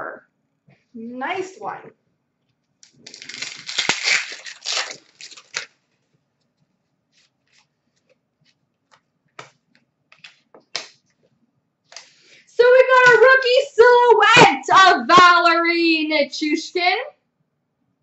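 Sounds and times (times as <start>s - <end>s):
wrapper tearing and crinkling: 2.8s - 5.8s
cards tapping and sliding: 7.2s - 11.0s.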